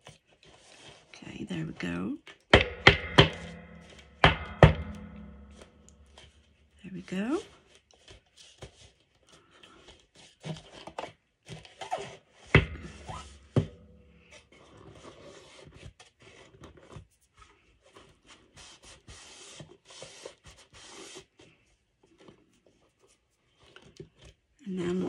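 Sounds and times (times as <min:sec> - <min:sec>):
sharp knocks: 0:02.5 - 0:06.4, 0:12.6 - 0:14.3
tissue rubbing on cardstock: 0:18.3 - 0:21.5.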